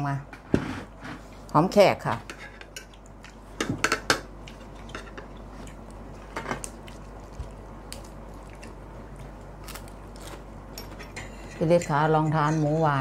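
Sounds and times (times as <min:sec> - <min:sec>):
cutlery clinking on plates: 0:10.8 - 0:12.7.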